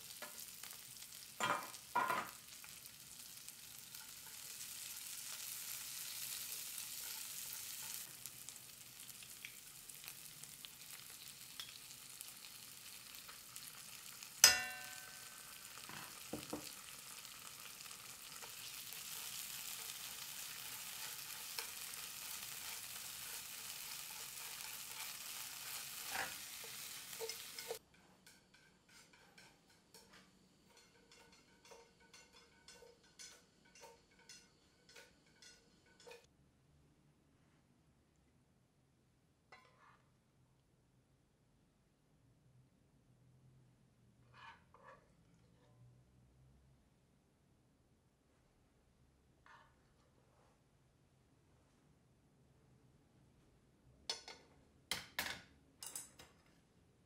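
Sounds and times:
vegetables sizzling in oil: 0:00.0 - 0:36.3
sharp metallic clink: 0:14.4 - 0:15.2.

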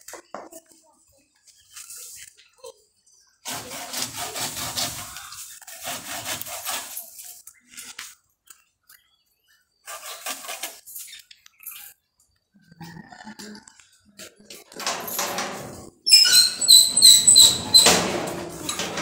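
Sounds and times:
handsaw rasping through branch: 0:03.5 - 0:07.1.

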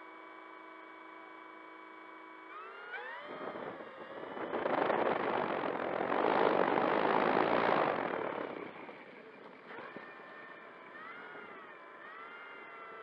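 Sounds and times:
electric motor whine: 0:00.0 - 0:13.0
propeller wash over microphone: 0:04.5 - 0:09.0.

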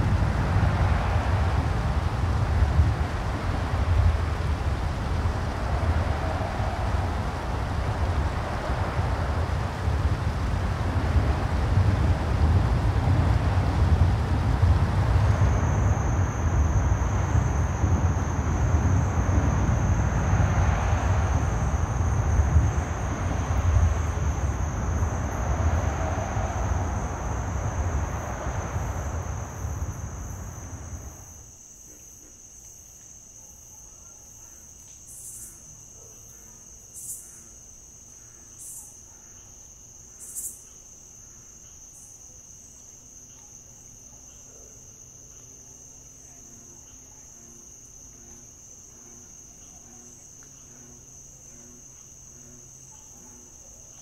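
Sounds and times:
loud low rumble: 0:00.0 - 0:31.4
crickets trilling: 0:00.0 - 0:54.0
sharp cricket chirps: 0:00.0 - 0:54.0.

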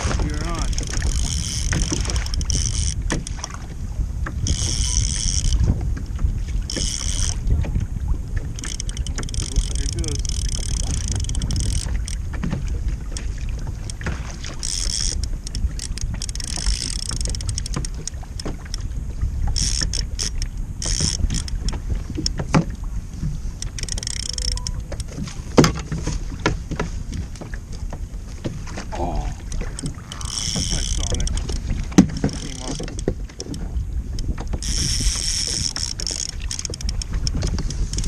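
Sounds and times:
wind rumble on microphone: 0:00.0 - 0:38.0
knocks and clicks: 0:00.1 - 0:03.4, 0:08.5 - 0:18.8, 0:19.5 - 0:22.7, 0:23.6 - 0:26.6, 0:29.5 - 0:38.0.

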